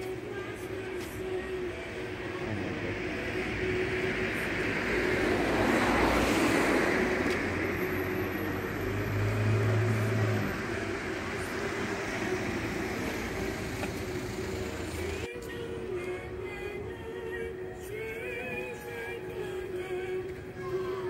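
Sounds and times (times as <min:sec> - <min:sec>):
vehicle passing: 0:01.7 - 0:15.3
deep engine sound: 0:02.4 - 0:15.3.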